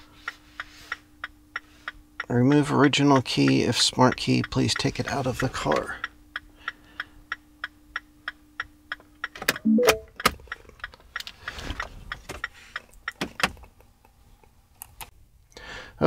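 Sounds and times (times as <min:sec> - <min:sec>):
short electronic tone: 0:09.7 - 0:10.1.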